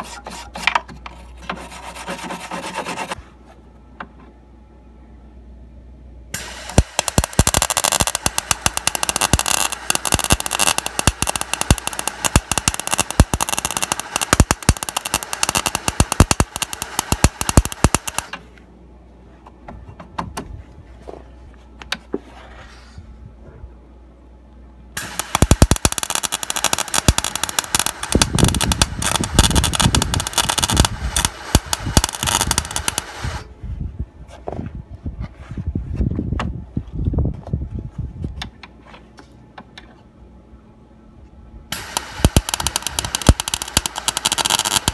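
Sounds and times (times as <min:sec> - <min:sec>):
welder arc crackling: 0:06.4 - 0:18.4, 0:25.0 - 0:33.5, 0:41.7 - 0:44.9.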